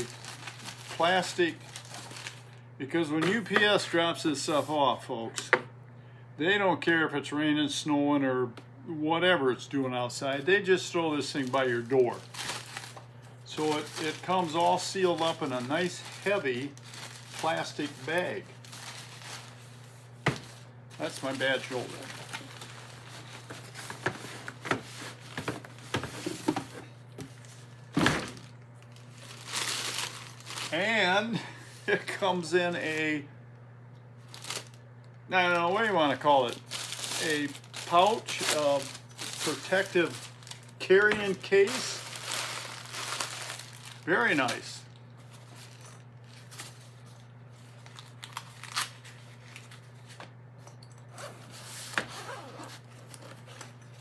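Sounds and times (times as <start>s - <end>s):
plastic bag rustling: 0.0s - 2.6s, 11.2s - 31.0s, 34.2s - 34.8s, 35.5s - 50.2s.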